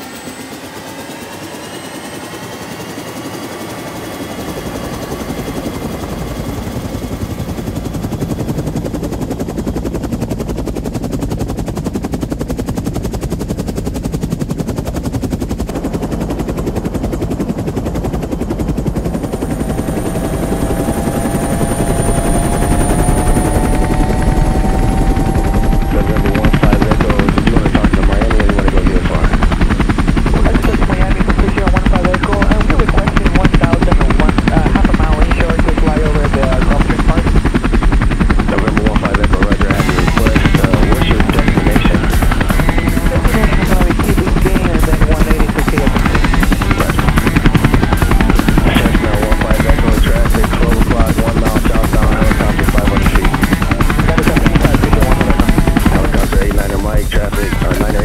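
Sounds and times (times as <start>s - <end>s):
motor with chopping beat: 28.2s - 58.0s.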